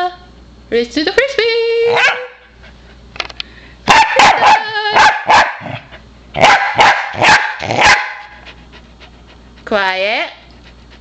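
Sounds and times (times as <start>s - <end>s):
dog barking: 1.9s - 2.5s, 3.9s - 5.8s, 6.4s - 8.4s.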